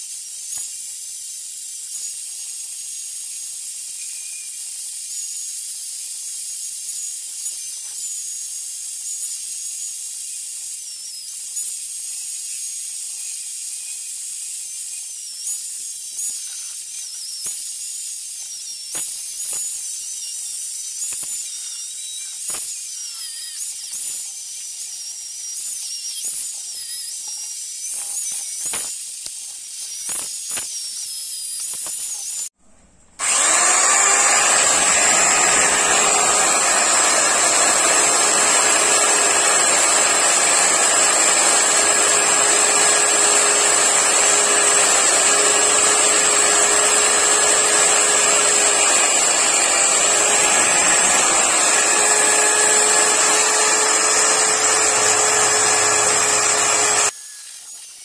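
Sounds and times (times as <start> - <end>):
electric drill buffing wheel whine: 33.2 - 57.9.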